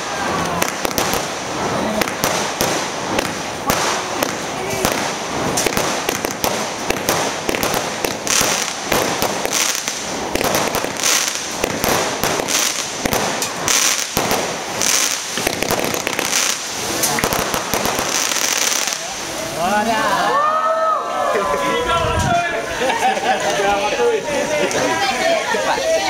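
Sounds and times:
fireworks bursting and crackling: 0.0 - 20.4.

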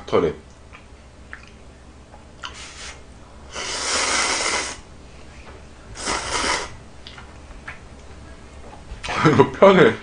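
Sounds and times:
person slurping noodles: 2.5 - 4.8, 6.0 - 6.8.

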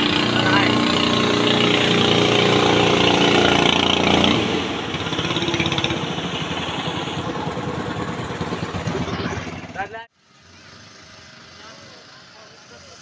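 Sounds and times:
boat engine droning: 0.0 - 9.8.

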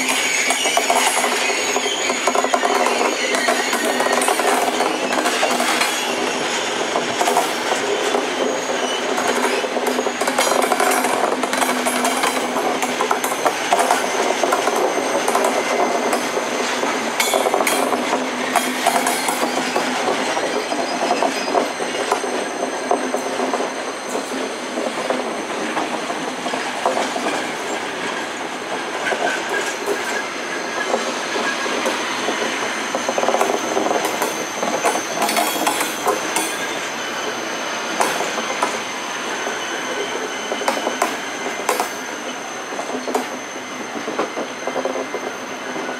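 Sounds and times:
high squeal: 0.0 - 45.9
train rumble: 0.0 - 45.9
train wheels clacking: 0.0 - 45.9.

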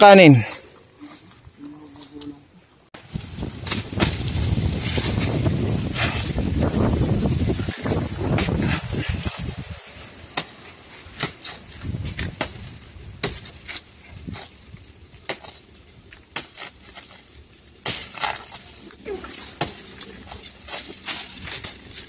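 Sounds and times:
wind buffeting microphone: 3.0 - 9.8, 11.7 - 13.2
dry leaves crackling and rustling: 3.0 - 22.0.

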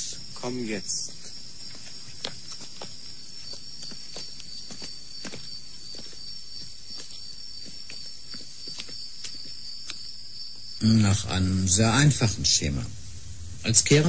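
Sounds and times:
crickets chirring: 0.0 - 14.0
footsteps on stone paving: 0.9 - 10.7.

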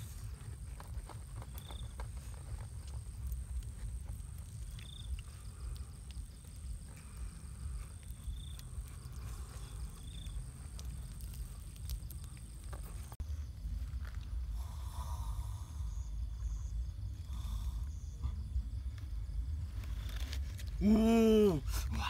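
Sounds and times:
campfire crackling: 0.0 - 15.4
insect chirps: 0.0 - 22.0
insects droning: 0.0 - 22.0
low rumble: 0.0 - 22.0.

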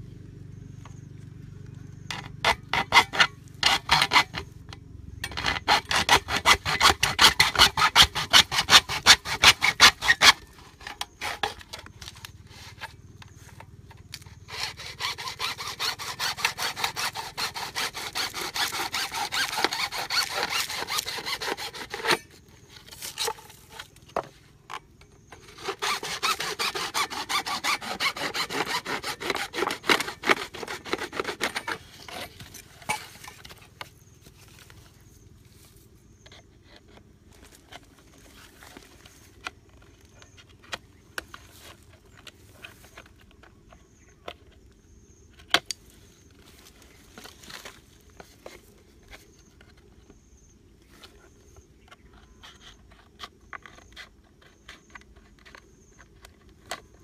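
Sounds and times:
hacksaw cutting plastic pipe: 2.1 - 4.5, 5.2 - 34.0, 36.2 - 44.6, 51.0 - 57.0.

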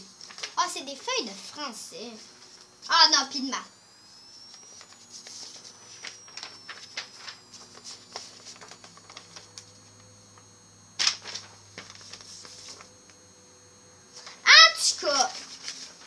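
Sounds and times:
paper rustling and shuffling: 0.2 - 0.8, 4.5 - 10.0, 11.0 - 12.9, 14.1 - 16.0.

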